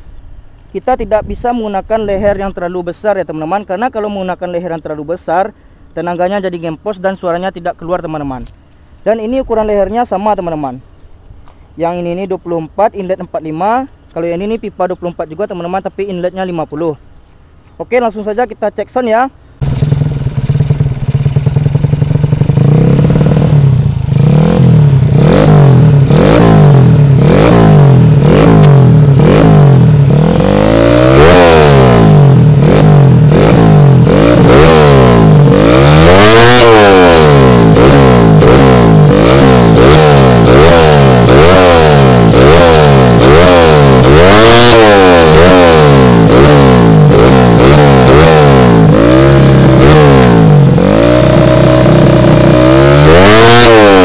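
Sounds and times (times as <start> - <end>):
motorcycle engine revving: 19.6 - 54.0.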